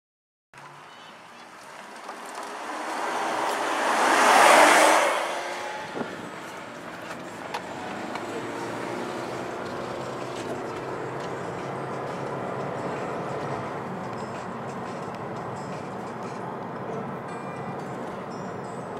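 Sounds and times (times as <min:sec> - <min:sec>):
engine and road drone: 0:00.6 - 0:18.9
sports car exhaust passing by: 0:01.4 - 0:15.4.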